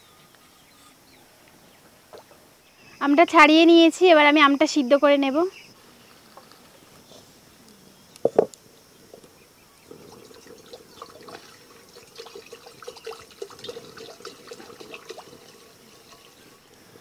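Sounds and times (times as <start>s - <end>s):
water pouring into pan: 10.1s - 16.7s.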